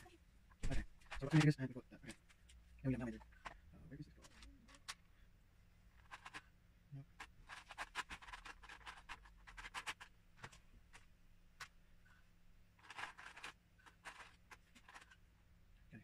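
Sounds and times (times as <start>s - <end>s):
plastic bricks clicking and rattling: 6.0s - 6.5s, 7.1s - 11.8s, 12.8s - 15.2s.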